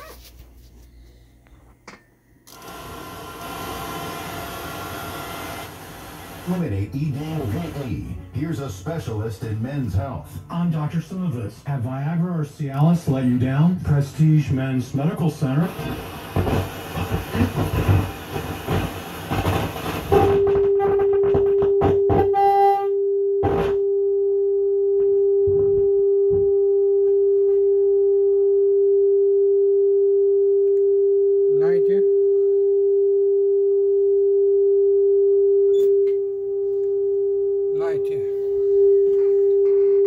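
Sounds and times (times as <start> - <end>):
radio speech: 6.4 - 16.6.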